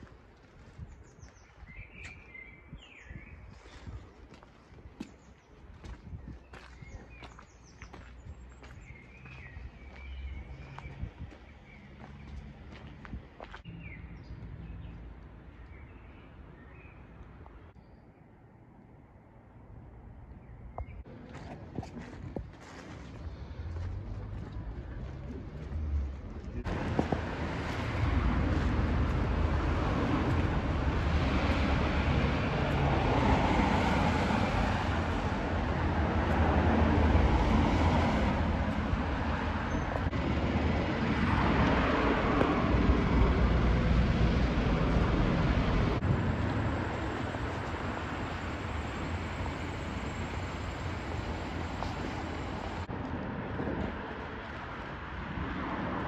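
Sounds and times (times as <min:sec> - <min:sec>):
cars passing on a wet road: 0:08.5 - 0:13.9, 0:22.7 - 0:56.0.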